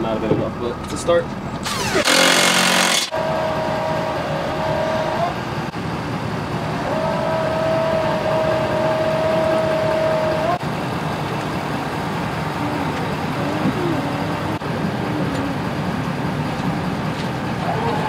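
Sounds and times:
truck engine high tone: 0.6 - 18.0
impact wrench hammering: 1.7 - 3.2.

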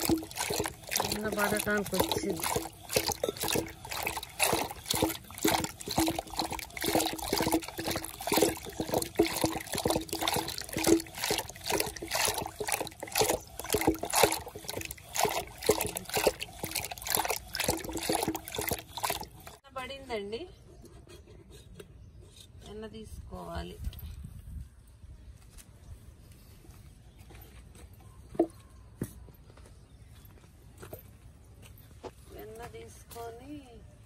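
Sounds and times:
liquid splashing in clay pot: 0.0 - 19.6.

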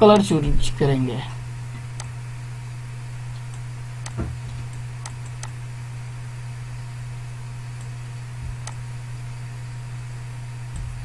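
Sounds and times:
low electrical hum: 0.0 - 11.0
computer mouse clicking: 5.0 - 5.5, 8.6 - 8.8.

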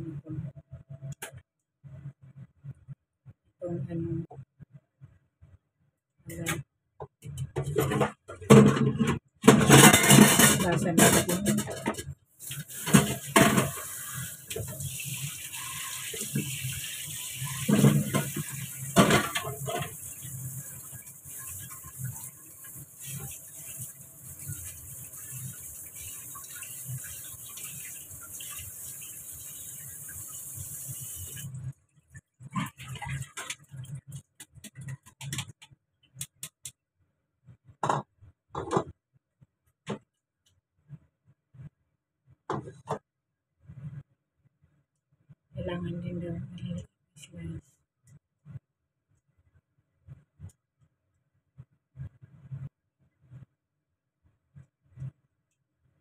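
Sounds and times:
tap running water into sink: 12.4 - 31.6.

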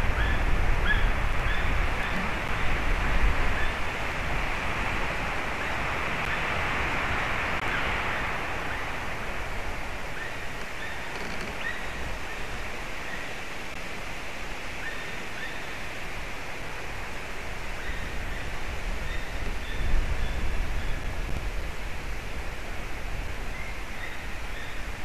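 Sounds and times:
wind in the trees: 0.0 - 25.0
faint high bird calls: 10.1 - 13.4, 23.5 - 24.9.

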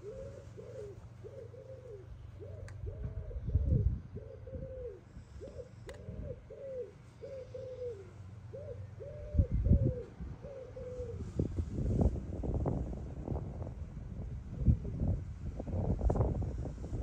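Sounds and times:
pigeon cooing: 0.0 - 11.4.

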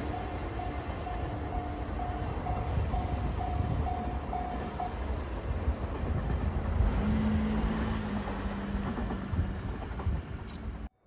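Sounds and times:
level-crossing alarm dinging: 0.0 - 5.1
electric train rumbling: 0.0 - 11.0
wind buffeting microphone: 0.3 - 10.9.

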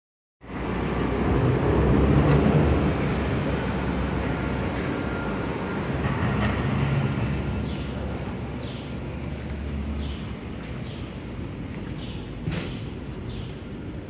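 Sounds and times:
bus engine idling: 6.7 - 14.0.

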